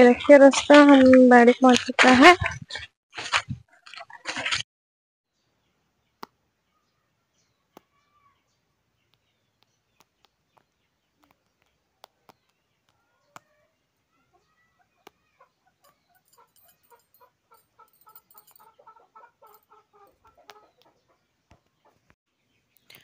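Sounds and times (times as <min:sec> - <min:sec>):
chicken clucking: 0:14.3 - 0:22.1.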